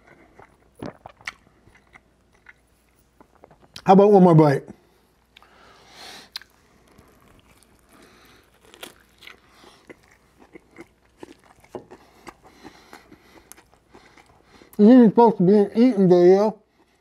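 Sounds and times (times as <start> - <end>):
person chewing: 0.0 - 3.8, 6.2 - 14.8.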